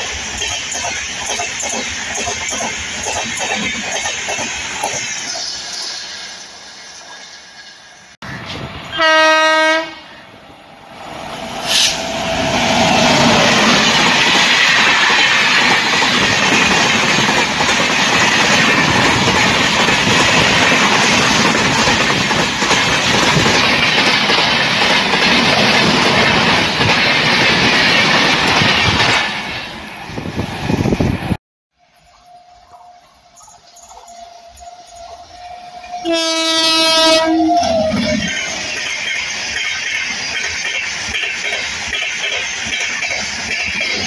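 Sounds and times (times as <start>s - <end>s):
train wheels on rails: 0.0s - 44.0s
train horn blast: 8.9s - 10.2s, 35.4s - 38.3s.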